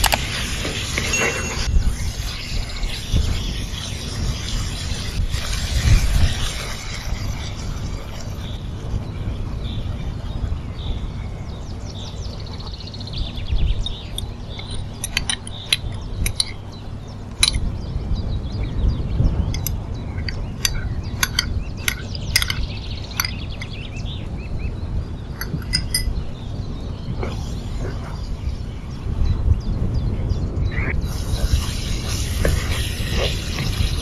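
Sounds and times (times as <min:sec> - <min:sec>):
steady low hum: 0:00.0 - 0:34.0
metal spoon clinking on glass bowl: 0:25.4 - 0:26.1.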